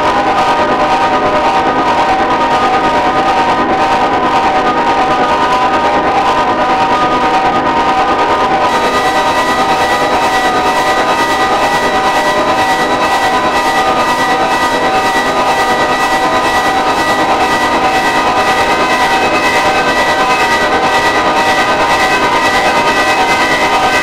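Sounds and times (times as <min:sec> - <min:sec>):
pulsing electronic drone: 0:05.6 - 0:24.0.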